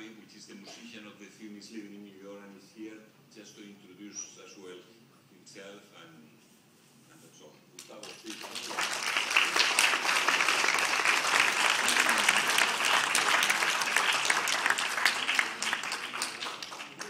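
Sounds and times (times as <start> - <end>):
audience applauding: 8.0 - 17.0.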